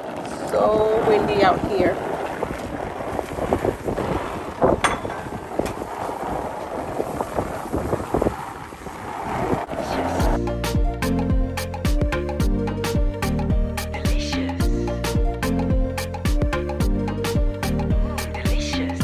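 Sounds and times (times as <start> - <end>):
wind buffeting microphone: 0.0 - 11.0
background music: 10.1 - 19.0.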